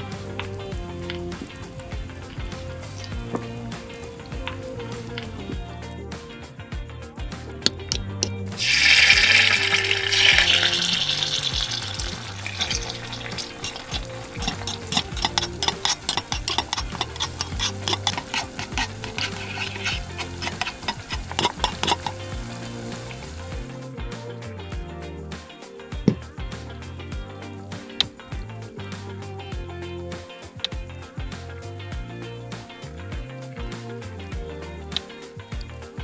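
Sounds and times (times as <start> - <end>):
sauce sizzling in hot oil: 0.0 - 5.5, 8.6 - 23.9
crackling oil: 0.0 - 24.5
background music: 0.0 - 36.0
spoon clicks: 7.7 - 23.2.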